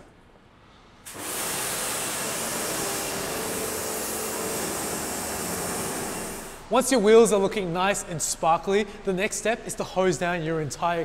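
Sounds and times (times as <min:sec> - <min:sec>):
water jet spraying car wheel: 0:01.0 - 0:06.6.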